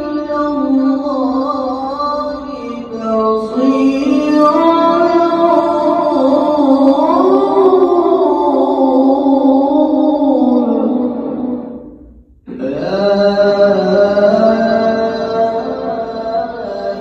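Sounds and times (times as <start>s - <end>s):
man reciting melodically into microphone: 0.0s - 17.0s.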